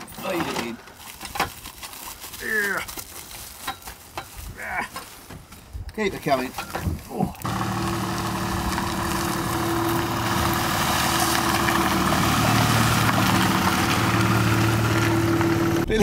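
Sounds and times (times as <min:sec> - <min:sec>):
car engine humming: 0:07.4 - 0:16.0.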